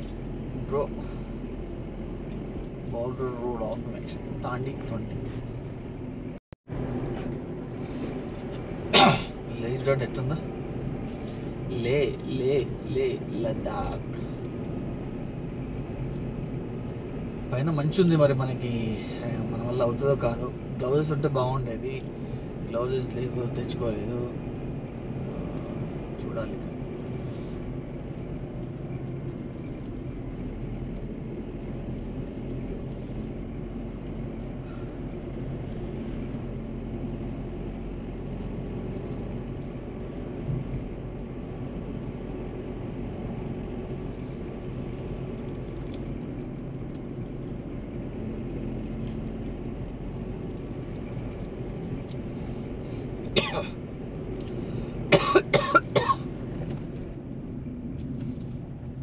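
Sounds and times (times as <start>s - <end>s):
car engine and road noise: 0.0s - 59.0s
person coughing: 9.0s - 9.4s, 53.4s - 53.8s, 55.1s - 56.2s.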